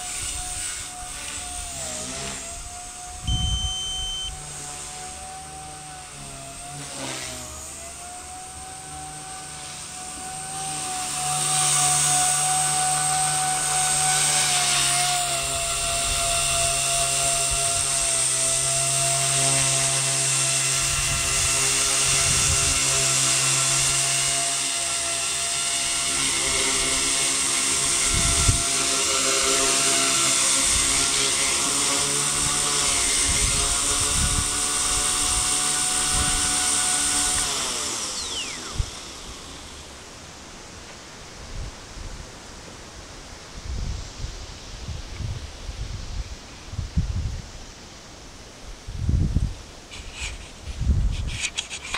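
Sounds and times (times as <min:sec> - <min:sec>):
rc helicopter rotors whining: 0:00.0 - 0:41.5.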